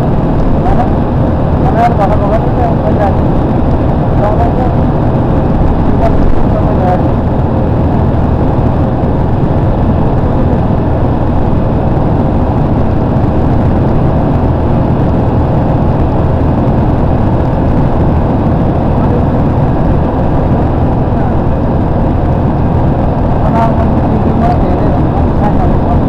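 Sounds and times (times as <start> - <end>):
vehicle cabin engine and tyre drone: 0.0 - 26.0.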